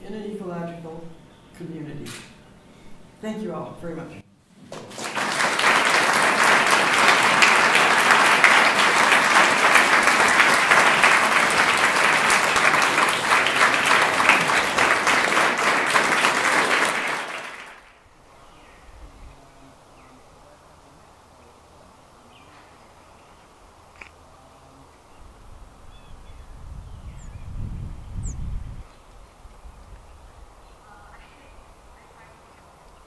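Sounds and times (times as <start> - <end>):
audience applauding: 4.6 - 18.0.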